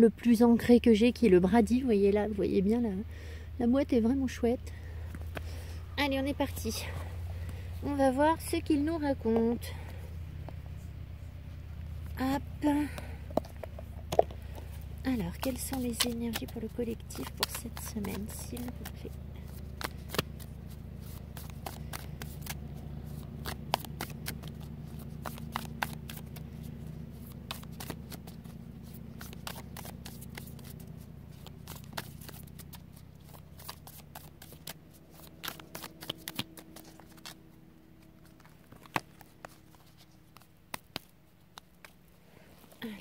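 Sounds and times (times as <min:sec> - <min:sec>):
low steady hum: 0:00.0 - 0:43.0
cards being shuffled: 0:12.8 - 0:43.0.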